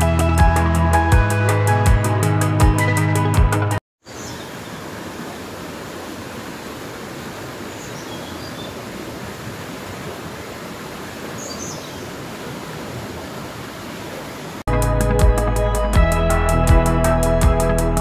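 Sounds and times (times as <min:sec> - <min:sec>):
river water rushing: 0:04.1 - 0:14.7.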